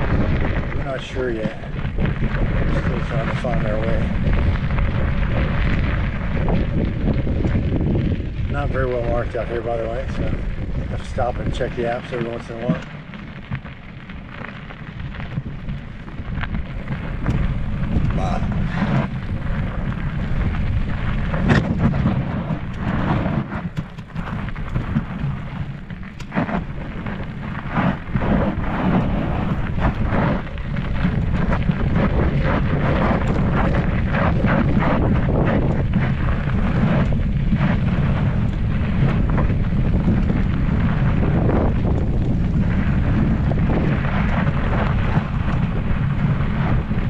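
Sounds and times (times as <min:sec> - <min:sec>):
bike clicking and rattling: 0:00.0 - 0:47.0
bike tyres rumbling on dirt: 0:00.0 - 0:47.0
wind buffeting microphone: 0:00.0 - 0:47.0.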